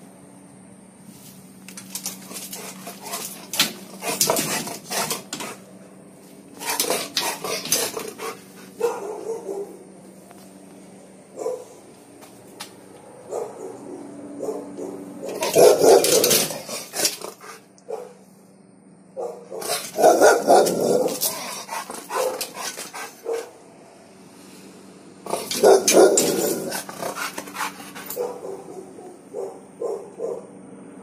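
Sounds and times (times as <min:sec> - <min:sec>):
dog barking: 0:06.6 - 0:09.8, 0:11.3 - 0:11.8, 0:13.3 - 0:18.2, 0:19.2 - 0:23.6, 0:25.3 - 0:30.5.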